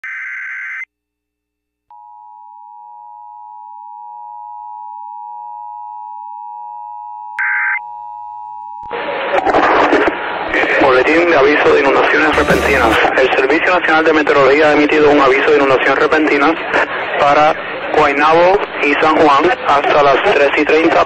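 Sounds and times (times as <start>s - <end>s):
announcer speaking: 12.3s - 13.1s
two-tone attention signal: 12.4s - 13.0s.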